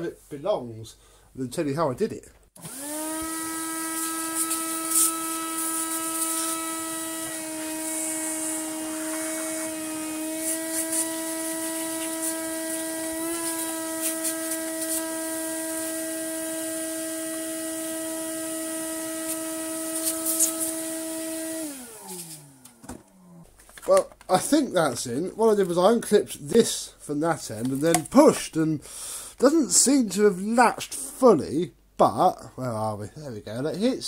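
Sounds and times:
small electric motor running: 0:02.6 - 0:22.6.

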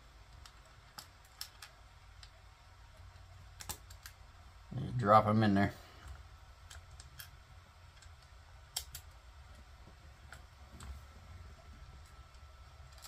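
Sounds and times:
low steady hum: 0:00.0 - 0:13.0
small plastic parts clicking: 0:00.2 - 0:04.2, 0:06.0 - 0:11.0, 0:11.8 - 0:13.0.

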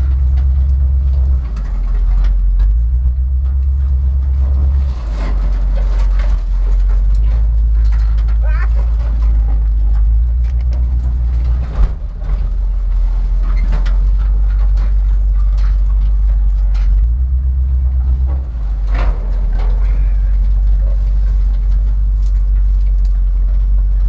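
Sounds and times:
knocks and rattles: 0:00.0 - 0:24.0
truck engine low drone: 0:00.0 - 0:24.0.

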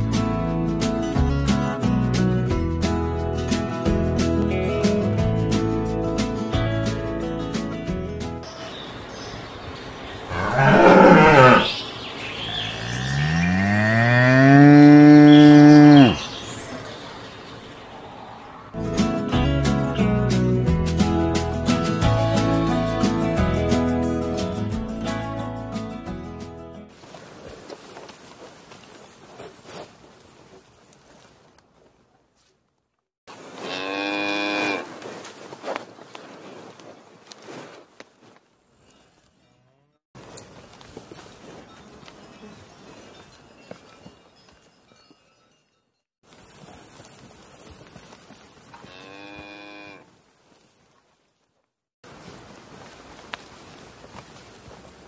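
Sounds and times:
cows mooing: 0:10.3 - 0:11.8, 0:12.4 - 0:16.4, 0:33.6 - 0:34.9, 0:48.8 - 0:50.1
soft rustling: 0:26.9 - 0:33.8, 0:34.4 - 0:39.3
cow tearing and chewing grass: 0:40.2 - 0:45.1.

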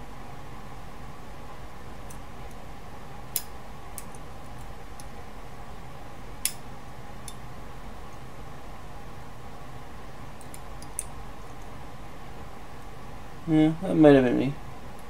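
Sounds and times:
steady background hum: 0:00.0 - 0:15.0
metal tweezers clicking: 0:07.2 - 0:07.4.

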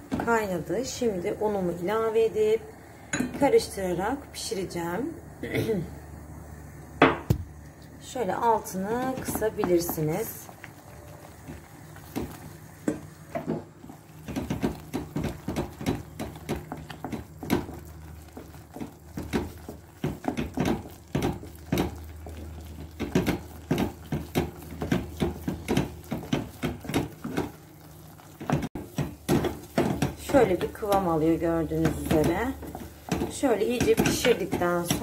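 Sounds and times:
wooden spoon scraping a pot: 0:08.7 - 0:35.0.

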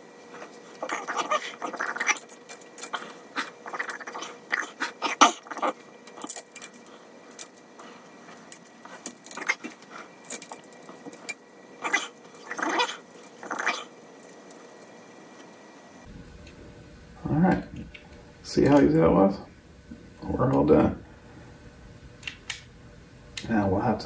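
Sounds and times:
faint fan whine: 0:00.0 - 0:24.0
small parts clicking and tapping: 0:06.0 - 0:07.7, 0:08.3 - 0:11.4.

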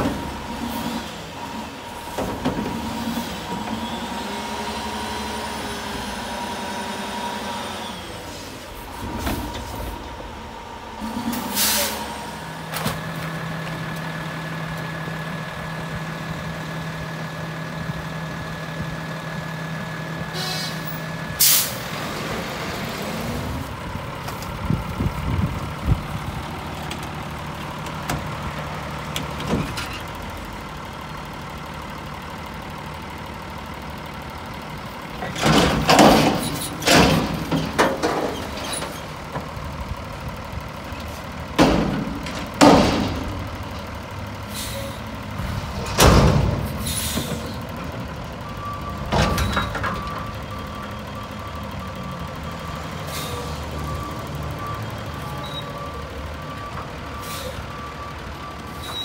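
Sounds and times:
truck engine and hydraulic whine: 0:00.0 - 0:59.0
metal dumpster banging: 0:35.2 - 0:39.4, 0:41.5 - 0:44.0, 0:45.3 - 0:47.9, 0:49.0 - 0:50.2.

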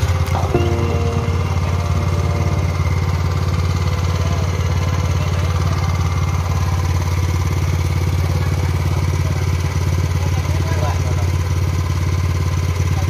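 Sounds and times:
petrol engine running: 0:00.0 - 0:13.0.

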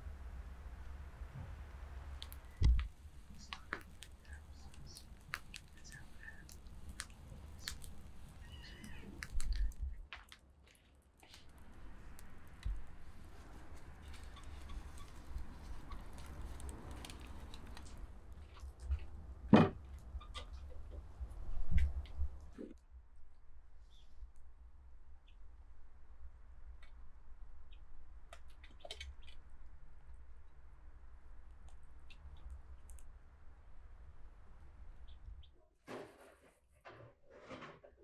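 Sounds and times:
small clicks and ticks: 0:01.7 - 0:19.1, 0:31.4 - 0:33.3.

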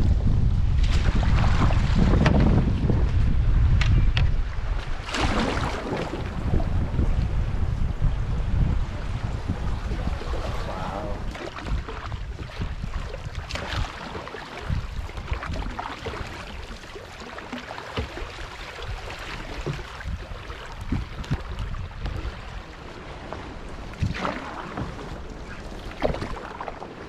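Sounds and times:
paddle strokes and splashes: 0:00.0 - 0:27.0
water washing along hull: 0:00.0 - 0:27.0
wind rumble on microphone: 0:00.0 - 0:27.0.

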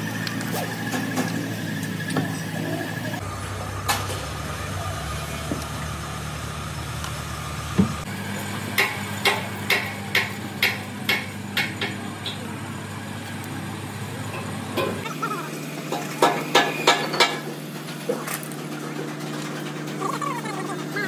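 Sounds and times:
workshop machine humming: 0:00.0 - 0:21.0
sharp hammer strikes: 0:08.8 - 0:12.0.

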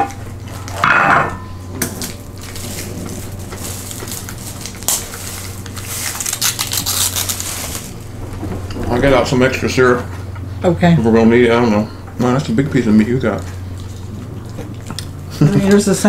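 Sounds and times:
steady low hum: 0:00.0 - 0:16.0
plastic packets crinkling: 0:02.0 - 0:08.2.

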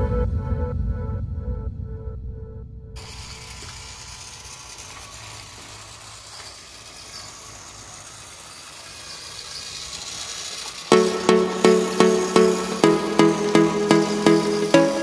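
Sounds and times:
toy train motor whirring: 0:03.0 - 0:15.0.

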